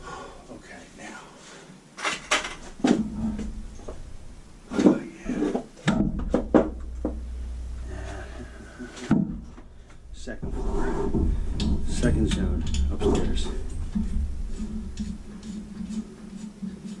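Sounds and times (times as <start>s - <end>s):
sharp knocks and clunks: 2.0s - 4.1s, 4.7s - 7.4s, 8.4s - 16.9s
low rumble: 2.7s - 16.7s.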